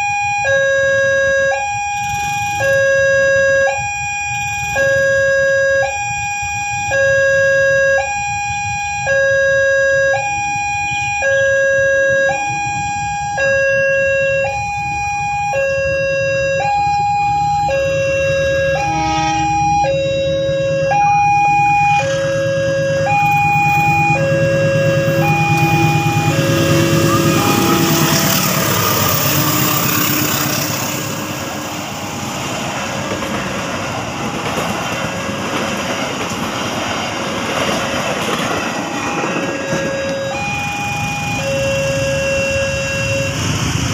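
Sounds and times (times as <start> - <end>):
two-tone crossing alarm: 0.0 - 43.9
train rumbling past: 14.4 - 43.9.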